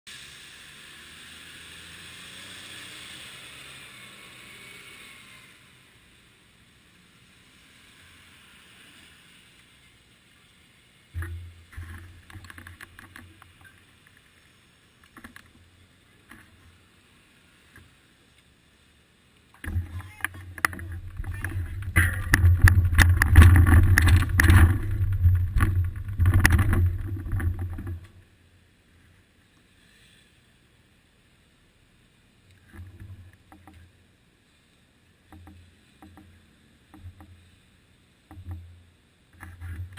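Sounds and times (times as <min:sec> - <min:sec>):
vehicle tyre hiss: 0:00.1 - 0:11.1, 0:29.4 - 0:32.2
vehicle engine hum: 0:00.1 - 0:18.2, 0:18.9 - 0:28.4
bicycle road vibration rumble: 0:00.1 - 0:30.9, 0:32.6 - 0:39.9
bicycle knocks and rattles: 0:11.2 - 0:13.8, 0:19.6 - 0:28.2, 0:38.3 - 0:38.7.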